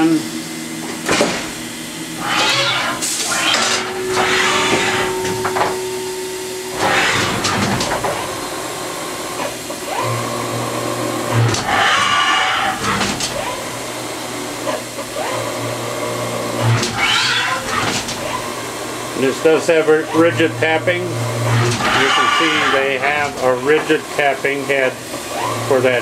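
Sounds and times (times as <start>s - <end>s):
low machine hum: 0.0s - 26.0s
machine whine rising in pitch: 2.0s - 13.8s.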